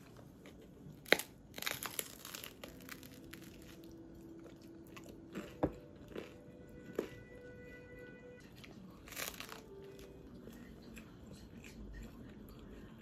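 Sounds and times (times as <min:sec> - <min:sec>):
soft background music: 0:00.0 - 0:13.0
crunching bites of toasted bread: 0:01.0 - 0:03.8, 0:09.0 - 0:10.1
chewing: 0:01.8 - 0:07.5, 0:08.6 - 0:13.0.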